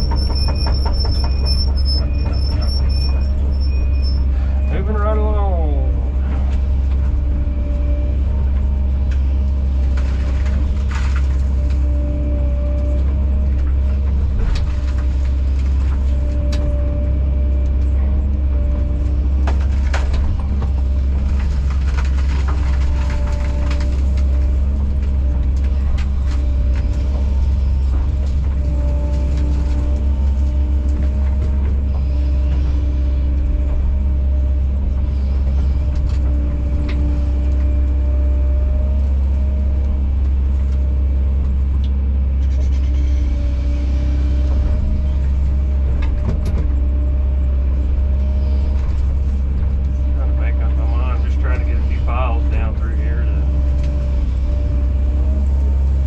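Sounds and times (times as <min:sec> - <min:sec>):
knocks and scrapes: 0:00.0 - 0:04.4
excavator diesel engine running: 0:00.0 - 0:56.0.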